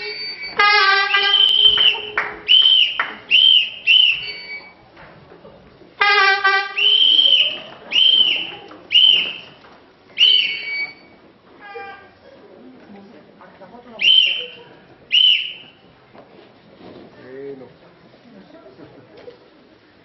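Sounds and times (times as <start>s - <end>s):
horn-like honk: 0.0s - 2.4s, 6.0s - 7.5s
whistle blasts: 0.0s - 4.8s, 6.0s - 9.6s, 10.2s - 11.2s, 14.0s - 15.8s.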